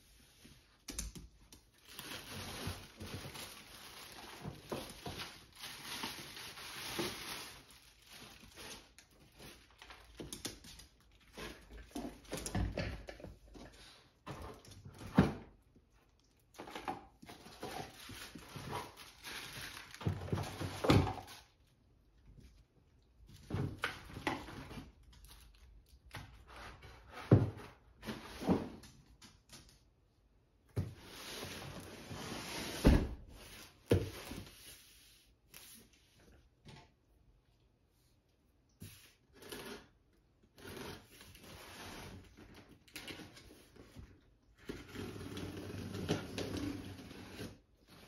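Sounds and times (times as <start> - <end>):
plastic bags rustling: 1.7 - 10.2, 17.3 - 21.6
items thudding on wooden floor: 32.8 - 33.3.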